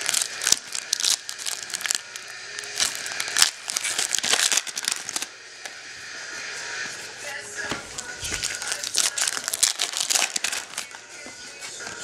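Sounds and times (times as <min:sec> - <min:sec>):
foil wrapper crinkling: 0:00.0 - 0:05.3, 0:08.0 - 0:11.2.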